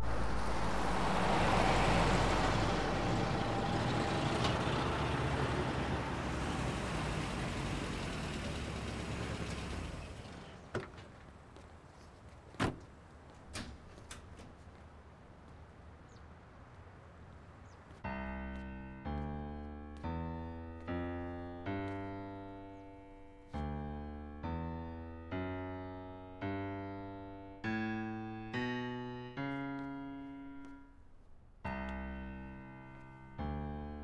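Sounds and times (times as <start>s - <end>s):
car engine and tyres: 0.0s - 23.7s
car doors opening and shutting: 12.5s - 12.9s.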